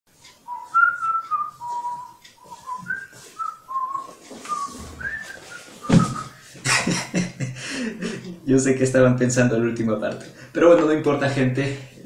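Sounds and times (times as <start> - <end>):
man whistling a tune: 0.5 - 6.4
low thump: 5.9 - 6.2.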